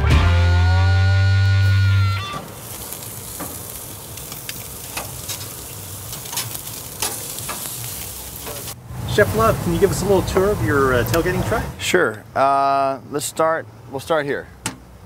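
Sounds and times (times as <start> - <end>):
meat sizzling on a grill: 1.6 - 11.6
fat popping and crackling: 2.0 - 8.8.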